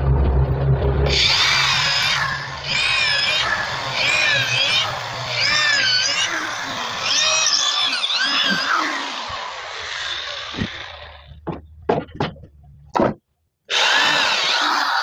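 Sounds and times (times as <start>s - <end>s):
electric drill boring into wood: 1.1s - 11.3s.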